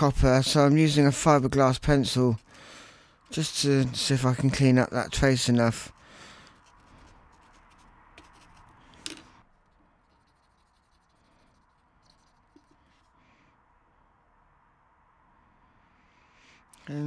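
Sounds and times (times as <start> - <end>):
pencil scratching circuit board: 6.5 - 8.8, 9.6 - 13.1.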